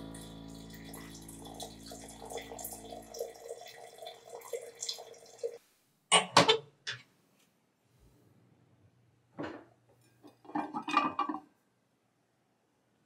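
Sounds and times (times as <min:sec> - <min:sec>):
tea pouring into teapot: 0:00.1 - 0:05.6.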